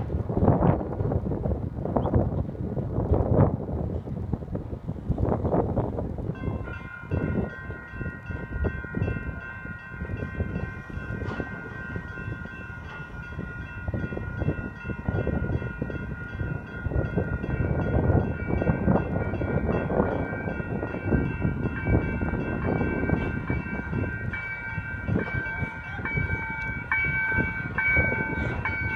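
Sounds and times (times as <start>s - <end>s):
wind buffeting microphone: 0.0s - 28.9s
railroad crossing bells ringing: 6.0s - 28.9s.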